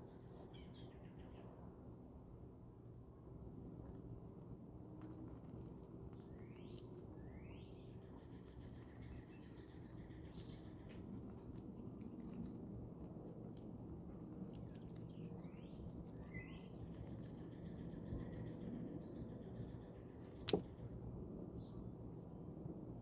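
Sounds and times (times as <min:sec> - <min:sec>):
songbird whistling: 0:15.2 - 0:18.6.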